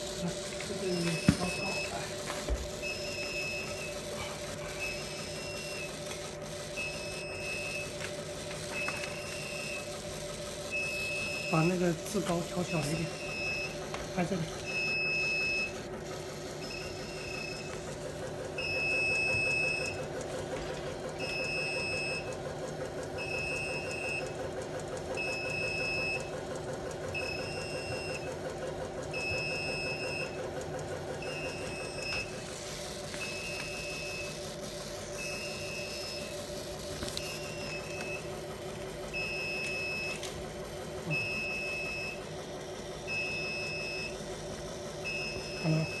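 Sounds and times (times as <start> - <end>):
printer humming: 0.0 - 46.0
high electronic alarm beep: 0.8 - 2.2, 2.8 - 4.1, 4.7 - 6.0, 6.7 - 7.9, 8.7 - 9.9, 10.7 - 15.8, 16.6 - 17.8, 18.6 - 20.0, 21.2 - 22.3, 25.2 - 26.3, 29.2 - 30.4, 31.2 - 32.3, 33.2 - 34.5, 35.1 - 36.4, 37.1 - 38.3, 39.1 - 40.3, 41.1 - 42.2, 43.1 - 44.2, 45.0 - 46.0.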